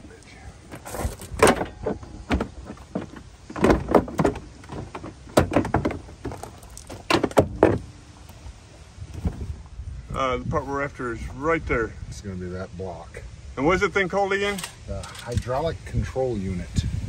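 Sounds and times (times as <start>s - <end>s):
plastic liner knocking and crackling: 0.7s - 7.9s.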